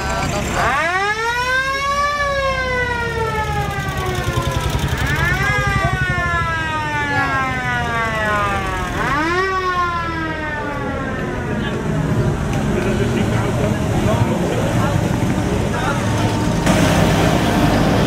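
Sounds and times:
vehicle engines rumbling past: 0.0 - 18.0
siren wailing: 0.6 - 11.9.

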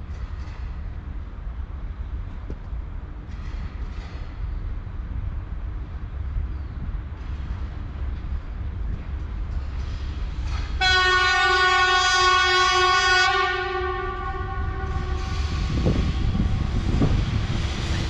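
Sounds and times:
low rumble of freight train: 0.0 - 18.0
locomotive air horn blast: 10.8 - 16.8.

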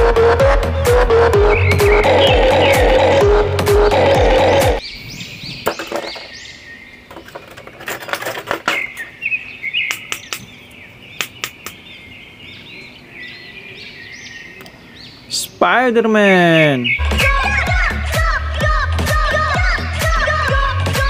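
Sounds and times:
electronic music: 0.0 - 4.8, 17.0 - 21.0
birds chirping: 0.0 - 20.8.

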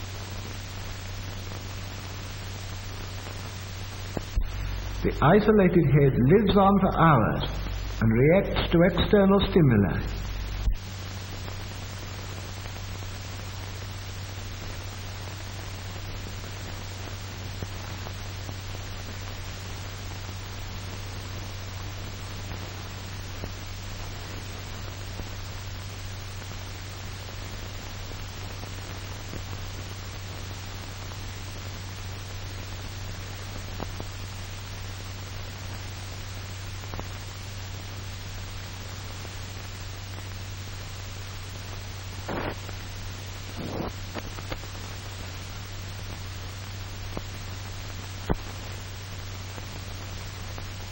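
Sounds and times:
film soundtrack hiss and hum: 0.0 - 50.9
faint clicks and crackles: 2.7 - 5.1, 41.5 - 50.9.

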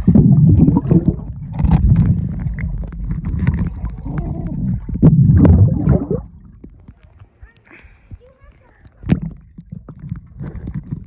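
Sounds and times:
underwater water churning: 0.0 - 7.0, 8.9 - 11.0
knocks and splashes: 0.0 - 11.0.

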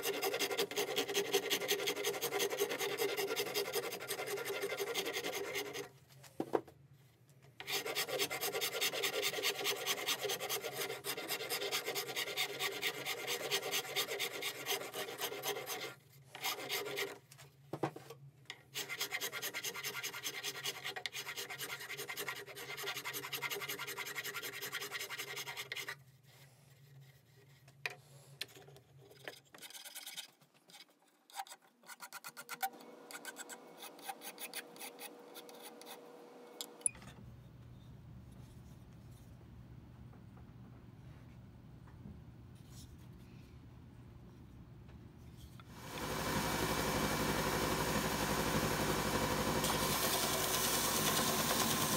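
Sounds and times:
hand file rasping on wood: 0.0 - 5.9, 7.6 - 17.2, 18.8 - 26.0, 31.3 - 36.0.

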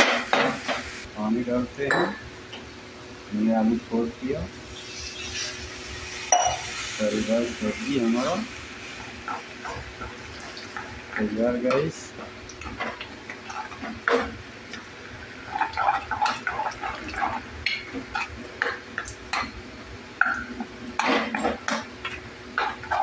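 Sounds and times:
gravy sloshing: 15.2 - 19.2.

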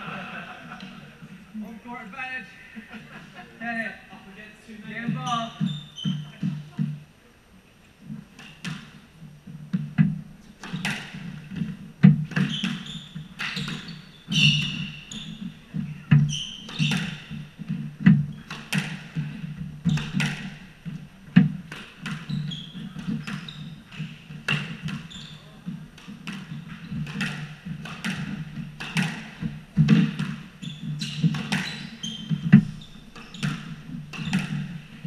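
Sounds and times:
shoes squealing on wooden floor: 4.8 - 6.8, 10.6 - 11.7, 12.3 - 35.0
squash ball smacking: 9.7 - 25.1, 25.7 - 35.0.

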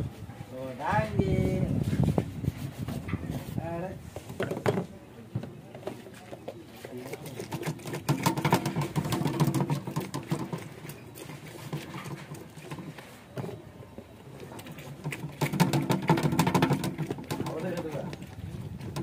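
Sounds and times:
lime scraping on plastic juicer: 5.8 - 13.6, 14.3 - 19.0.

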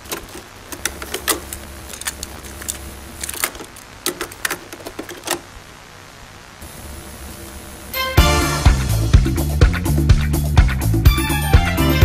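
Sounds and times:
sharp clicks and clatters: 0.0 - 5.5
steady hiss: 0.0 - 10.1.

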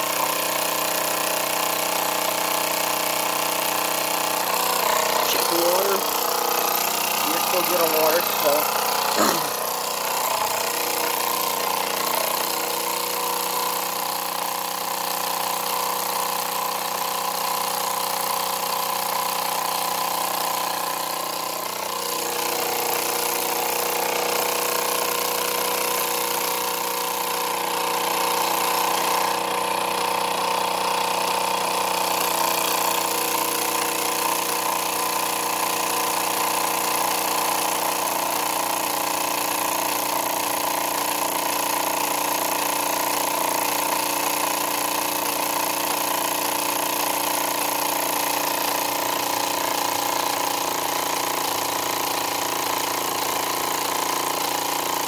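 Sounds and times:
toy steam engine whirring: 0.0 - 15.5.

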